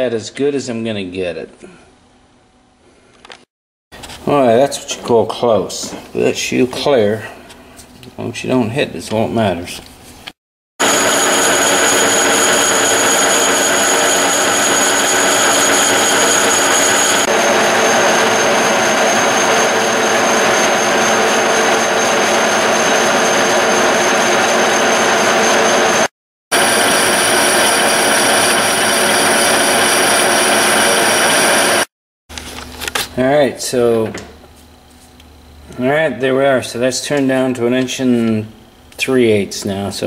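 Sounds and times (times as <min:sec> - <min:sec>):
metal lathe running: 0:10.8 - 0:31.9.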